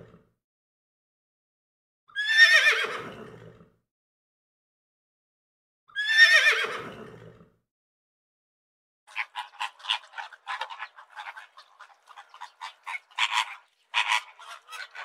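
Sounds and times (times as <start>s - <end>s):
horse whinnying: 2.2s - 3.0s, 6.0s - 6.8s
short animal calls: 9.1s - 15.0s.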